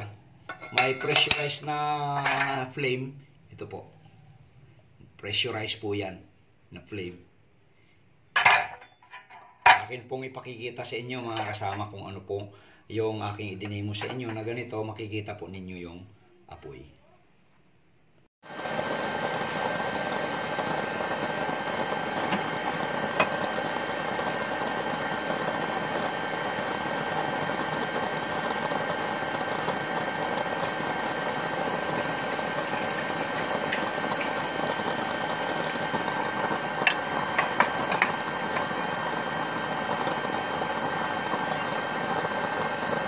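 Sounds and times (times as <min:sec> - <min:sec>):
oil burner flame hissing: 0:00.0 - 0:02.8, 0:08.4 - 0:15.0, 0:18.4 - 0:43.0
thin steady whine: 0:18.4 - 0:43.0.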